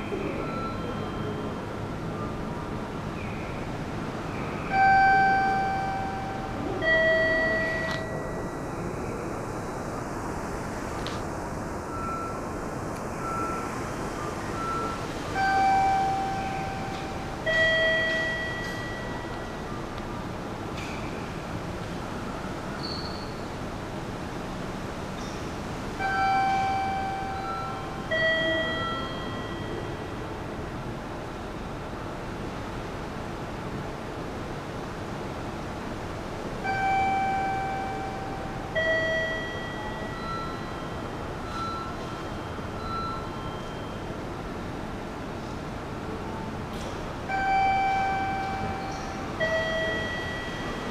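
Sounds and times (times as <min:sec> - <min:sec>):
short faint beeps: 0:00.0 - 0:01.8, 0:04.7 - 0:08.7, 0:11.9 - 0:19.8, 0:26.0 - 0:30.2, 0:36.6 - 0:44.2, 0:47.3 - 0:50.9
station concourse hum: 0:00.0 - 0:50.9
chime tones: 0:04.7 - 0:08.7, 0:14.6 - 0:19.7, 0:26.0 - 0:30.1, 0:36.7 - 0:44.1, 0:47.3 - 0:50.9
two-note descending electronic chime: 0:04.7 - 0:08.7.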